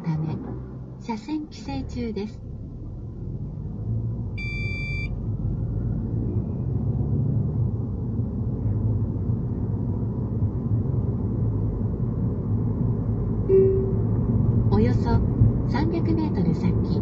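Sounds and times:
road and engine rumble in car: 0.0 - 17.0
short electronic beep: 4.4 - 5.1, 13.5 - 14.2.

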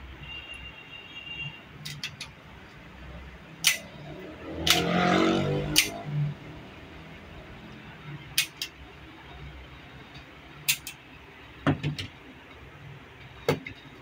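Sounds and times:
pistol metallic clicks: 3.6 - 3.9, 5.7 - 6.0, 8.4 - 8.8, 10.7 - 11.0.

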